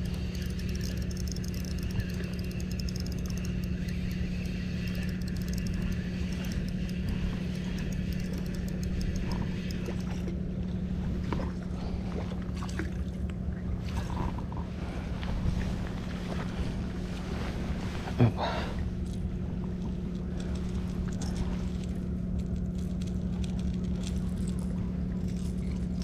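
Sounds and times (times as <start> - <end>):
faint clicks: 0.0 - 10.2
engine humming: 0.0 - 26.0.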